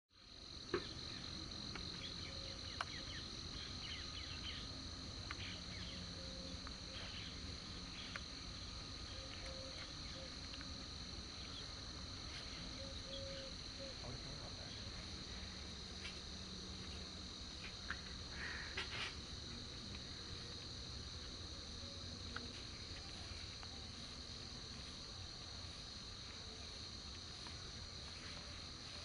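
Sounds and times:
high-pitched insect chorus: 0.2 - 29.0
faint chirps: 0.7 - 15.7.

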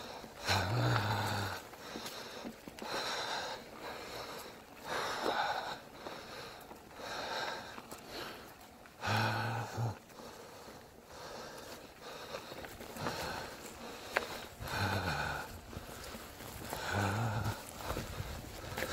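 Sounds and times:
heavy breathing: 0.0 - 18.9.

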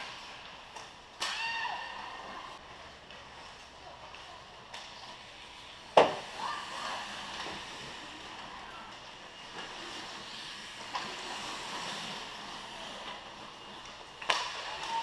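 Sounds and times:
hockey puck crack: 13.6 - 15.0.

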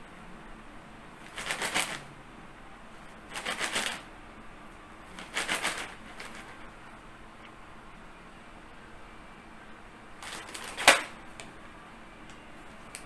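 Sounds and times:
plastic packet crinkling: 5.1 - 6.7, 10.2 - 11.2.

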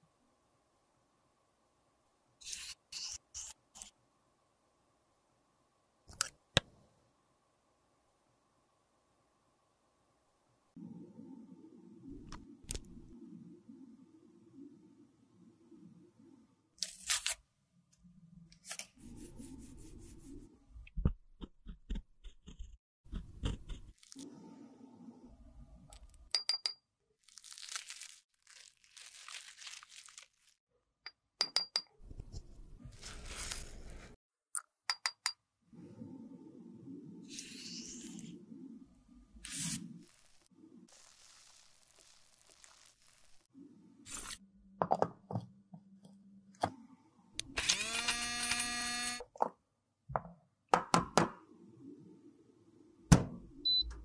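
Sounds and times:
spatula scraping powder: 32.1 - 34.2.

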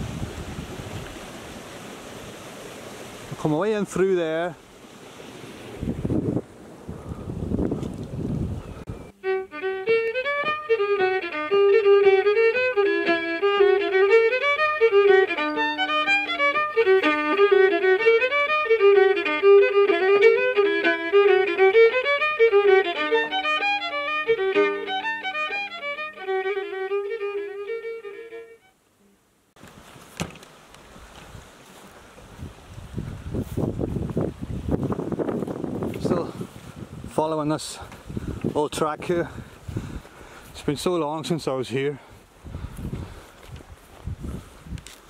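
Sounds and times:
wind noise on microphone: 0.0 - 3.4, 5.1 - 15.5, 29.6 - 45.0
fiddle playing a tune: 8.8 - 28.8, 34.7 - 44.9.

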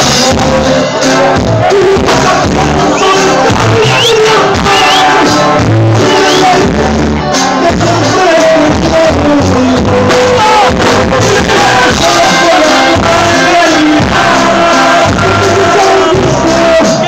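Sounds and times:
drum kit steady beat: 0.0 - 17.0
button accordion melody: 10.4 - 16.6.

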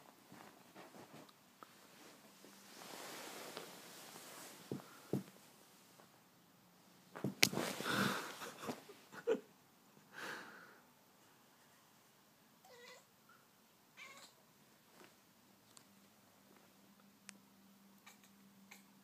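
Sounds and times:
cat meowing: 12.6 - 13.1, 14.0 - 14.4.

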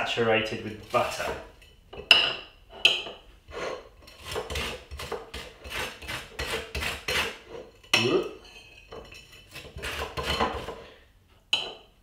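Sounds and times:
knife scraping butter on toast: 3.7 - 7.6, 9.2 - 10.8
knife clinking on glass dish: 7.8 - 10.7, 11.5 - 11.9.

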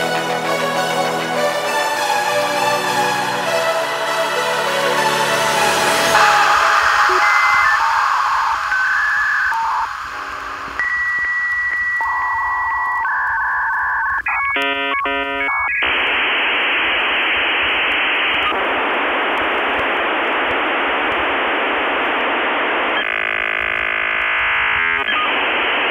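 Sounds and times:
modem hiss: 5.6 - 25.9
dial-up modem handshake tones: 6.2 - 18.6, 20.9 - 25.9.

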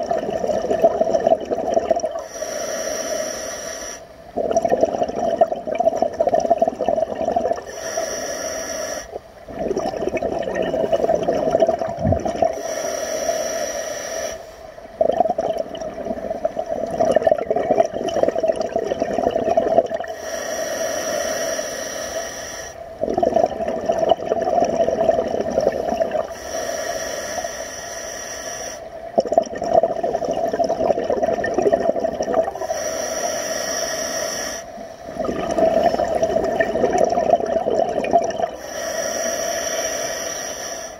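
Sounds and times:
exhaled air bubbling: 0.0 - 40.9
regulator inhalation hiss: 2.2 - 4.1, 7.6 - 9.2, 12.5 - 14.7, 20.1 - 22.9, 26.2 - 29.0, 32.5 - 36.5, 38.6 - 40.9.

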